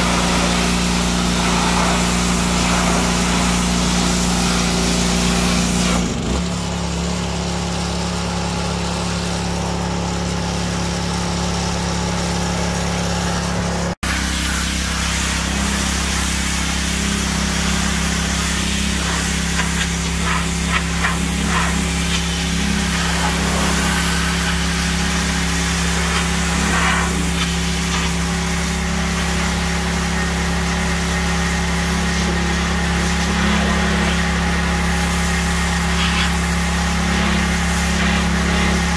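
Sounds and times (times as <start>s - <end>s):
water jet hissing: 0.0s - 6.0s, 14.0s - 38.9s
pressure washer motor running: 0.0s - 38.9s.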